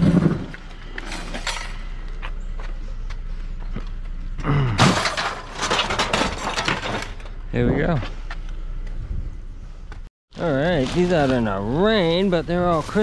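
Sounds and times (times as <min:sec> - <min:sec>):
junk clattering and rattling: 0:04.7 - 0:08.0.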